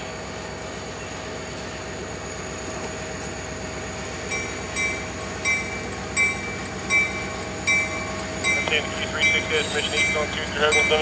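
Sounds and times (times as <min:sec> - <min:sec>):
diesel locomotive idling: 0:00.0 - 0:11.0
locomotive bell ringing: 0:04.3 - 0:11.0.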